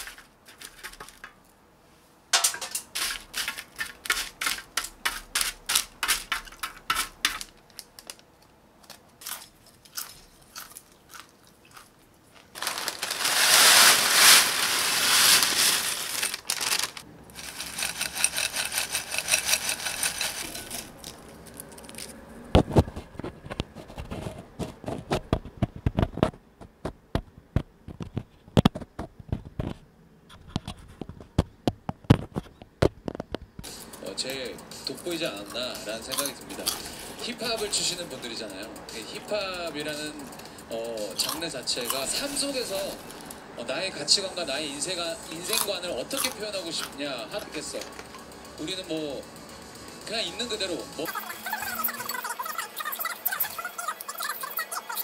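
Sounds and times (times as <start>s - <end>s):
popcorn crunching: 0.0s - 1.4s, 2.5s - 25.1s, 34.1s - 43.9s, 44.6s - 48.2s
popcorn pieces clicking: 0.0s - 1.4s, 2.4s - 22.1s, 34.1s - 43.4s, 45.3s - 48.1s
loud dry rustle: 12.5s - 21.2s.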